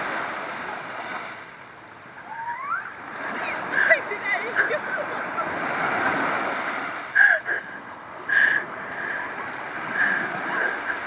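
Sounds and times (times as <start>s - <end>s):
surf washing up beach: 0.0s - 11.0s.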